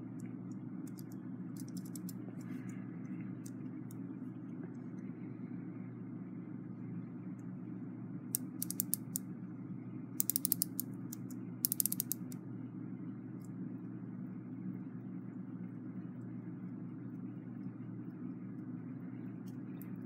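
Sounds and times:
low hum: 0.0 - 20.0
clock winding ratchet clicks: 0.9 - 2.2, 8.4 - 9.2, 10.2 - 12.4.

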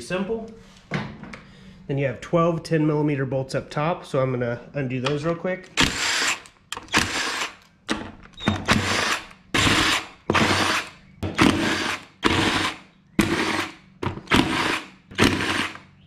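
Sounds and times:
cordless drill spinning bolts: 5.7 - 16.0.

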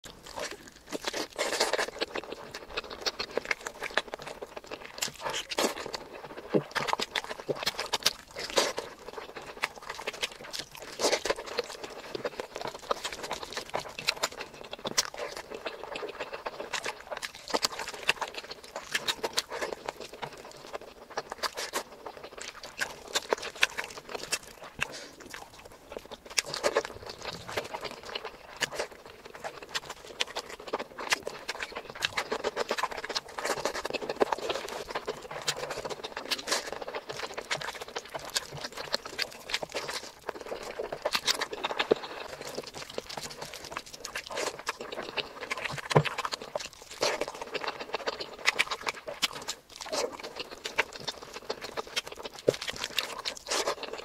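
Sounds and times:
food squishing under fingers: 0.0 - 54.0
wet chewing: 0.0 - 54.0.

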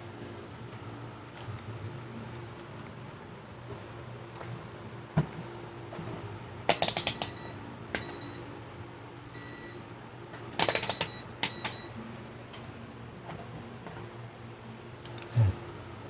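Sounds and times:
amplifier low hum: 0.0 - 10.2, 11.0 - 16.0
test probes clicking and tapping: 6.7 - 8.3, 10.6 - 11.9
multimeter beep: 7.1 - 8.4, 9.4 - 9.8, 10.8 - 12.0.

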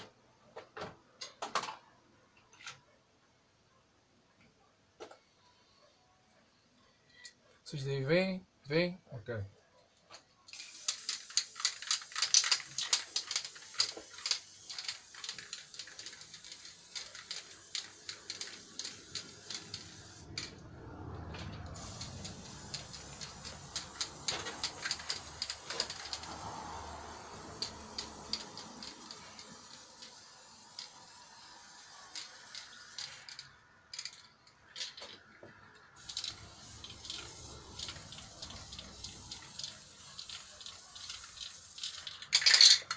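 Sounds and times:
spray can ball rattling: 10.5 - 20.6, 21.2 - 35.2, 35.9 - 42.9
spray can hissing: 10.5 - 20.6, 21.2 - 34.2, 36.0 - 42.7.

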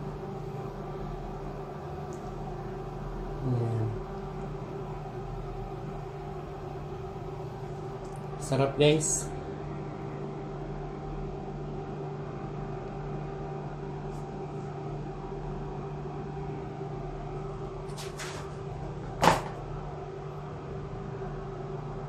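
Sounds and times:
appliance electrical hum: 0.0 - 22.0
sharp knock: 19.2 - 19.6.

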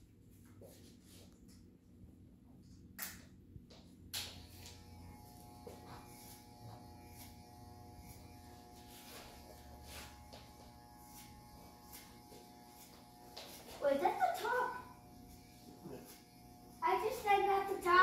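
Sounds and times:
electric hair clippers buzzing: 4.1 - 18.0.

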